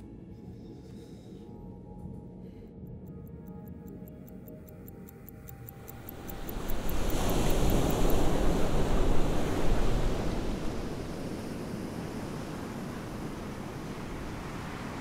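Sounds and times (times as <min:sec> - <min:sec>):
fast high ticking: 0:02.9 - 0:06.9
sea surf washing onto beach: 0:06.1 - 0:15.0.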